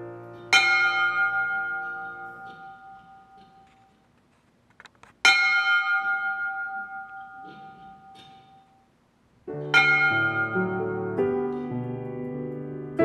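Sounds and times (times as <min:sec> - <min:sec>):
piano chords: 0:00.0 - 0:03.8, 0:09.4 - 0:13.0.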